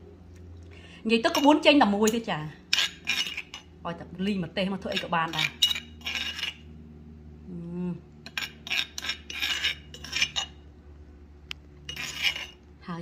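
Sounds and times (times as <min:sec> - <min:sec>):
utensils and dishes clinking: 0:01.3 - 0:03.7, 0:04.8 - 0:06.6, 0:08.2 - 0:10.6.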